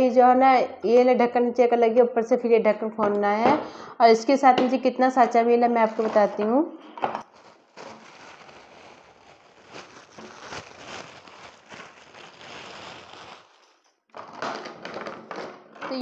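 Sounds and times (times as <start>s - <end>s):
plastic bag crinkling: 5.8s - 6.5s, 7.2s - 15.5s.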